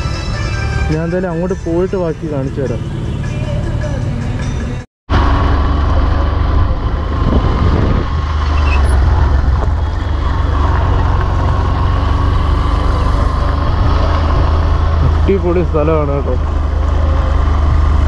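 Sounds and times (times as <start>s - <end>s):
motorcycle engine: 0.0s - 18.0s
wind rumble on microphone: 5.4s - 15.2s.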